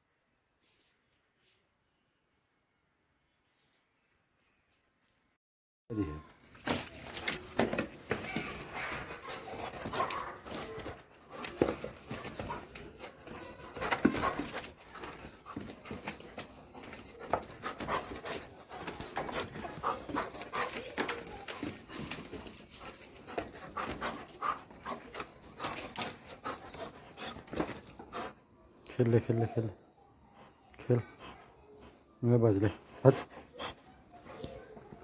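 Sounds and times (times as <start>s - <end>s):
handling clicks and rustles: 6.5s - 28.4s
dog panting: 8.2s - 28.7s, 30.3s - 35.0s.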